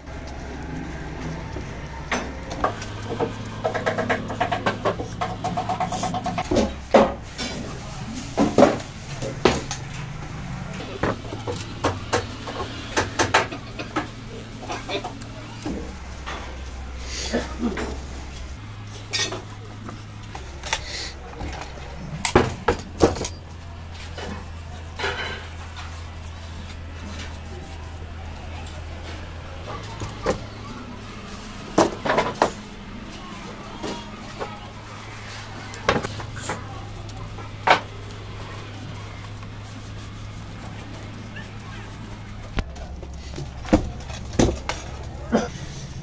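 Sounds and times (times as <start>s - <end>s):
rubbing strokes on wood: 2.6s - 6.5s.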